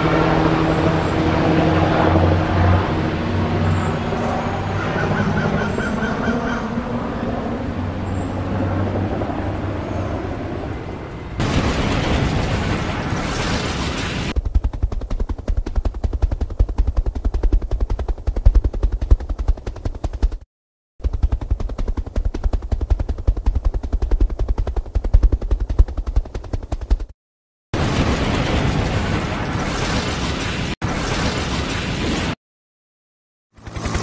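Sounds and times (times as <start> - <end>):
helicopter rotor hum: 0.0 - 20.4, 21.0 - 27.1, 33.5 - 34.0.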